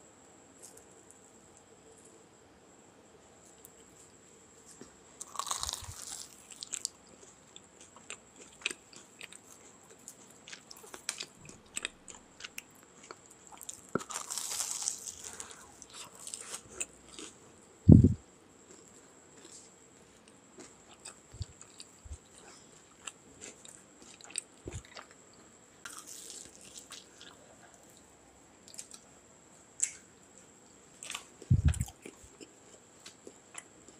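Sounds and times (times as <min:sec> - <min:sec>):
crunchy bites of fried food: 0:05.2 - 0:17.4, 0:20.3 - 0:28.0
chewing: 0:05.2 - 0:18.1, 0:18.7 - 0:28.0.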